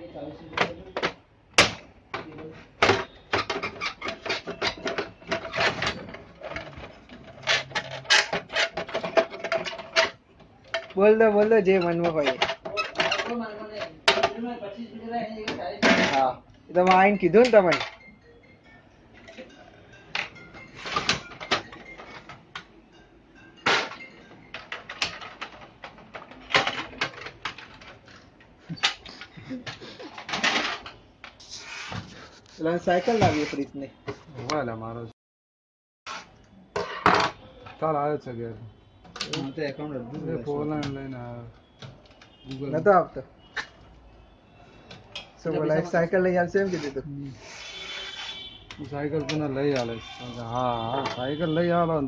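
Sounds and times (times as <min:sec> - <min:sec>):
plastic panels knocking and clicking: 0:00.5 - 0:11.1, 0:11.9 - 0:14.5, 0:24.6 - 0:28.0.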